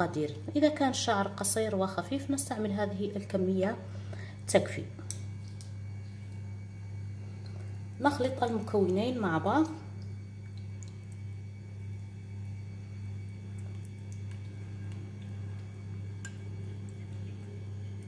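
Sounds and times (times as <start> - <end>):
steady low hum: 0.0 - 18.0
spoon stirring soft mixture: 9.9 - 18.0.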